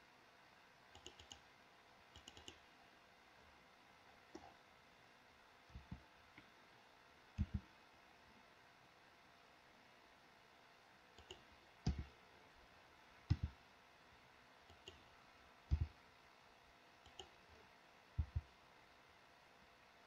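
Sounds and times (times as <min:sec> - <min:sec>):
mouse and keyboard clicks: 0:00.9 - 0:01.4, 0:02.1 - 0:02.6, 0:07.4 - 0:07.7, 0:11.2 - 0:12.1, 0:13.3 - 0:13.6, 0:14.7 - 0:15.1, 0:17.0 - 0:17.4.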